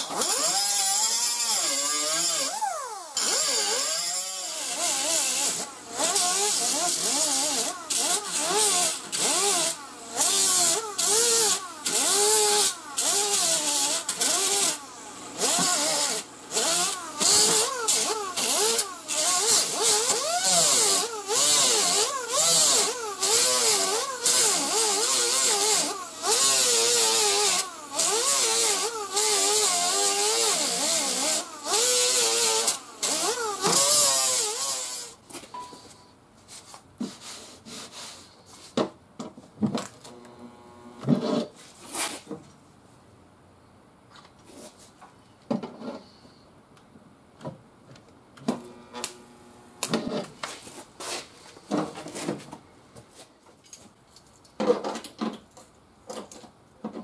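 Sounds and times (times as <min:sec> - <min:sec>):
air grinder grinding metal: 0:00.0 - 0:35.2.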